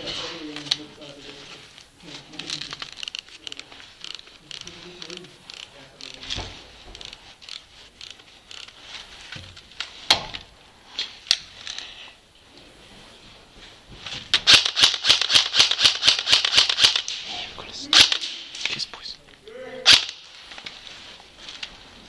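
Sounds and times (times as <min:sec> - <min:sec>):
airsoft rifle shots: 0:14.4 - 0:17.3, 0:17.9 - 0:18.6, 0:19.9 - 0:20.3.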